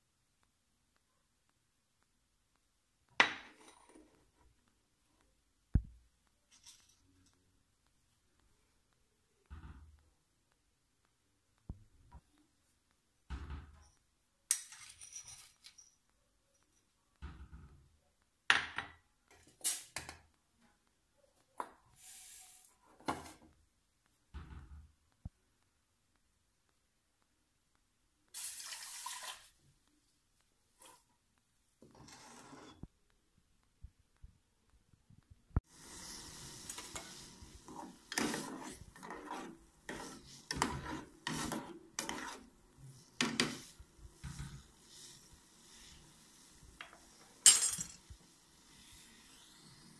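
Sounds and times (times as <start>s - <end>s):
metal ladle scraping a pot: 31.8s - 32.8s, 36.7s - 42.5s.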